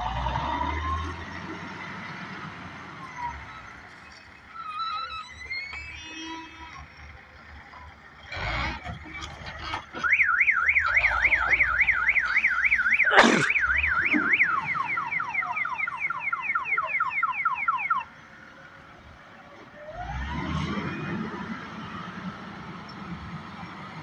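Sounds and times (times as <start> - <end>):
electronic alarm siren warbling: 10.1 - 18.1.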